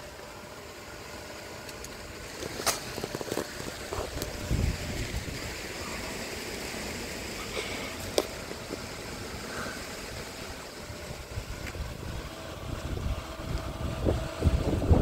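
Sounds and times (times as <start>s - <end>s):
outdoor background noise: 0.0s - 15.0s
wind on microphone: 3.6s - 5.6s, 10.9s - 15.0s.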